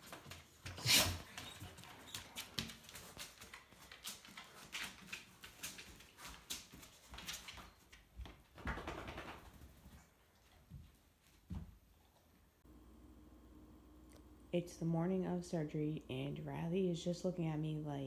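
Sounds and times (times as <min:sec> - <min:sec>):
dog claws clicking on floor: 0:01.4 - 0:09.6.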